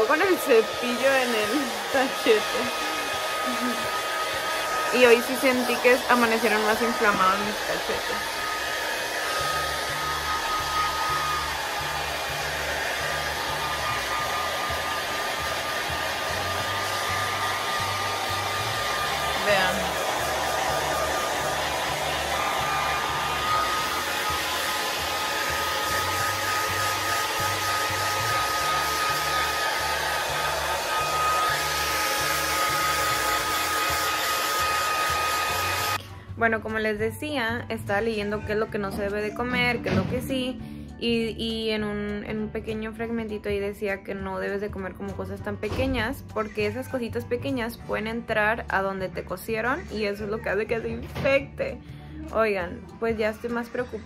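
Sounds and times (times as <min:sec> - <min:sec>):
hair dryer running: 0:00.0 - 0:36.1.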